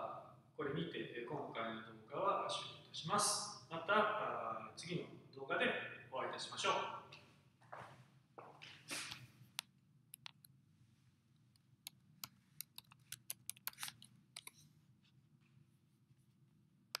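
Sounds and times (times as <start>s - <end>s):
low room hum: 0.0s - 17.0s
fingers tapping recording device: 9.6s - 10.6s, 11.4s - 14.6s.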